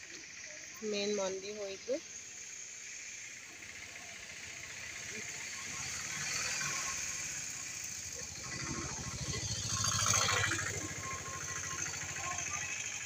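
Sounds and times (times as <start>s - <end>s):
vehicle engine passing by: 3.7s - 13.0s.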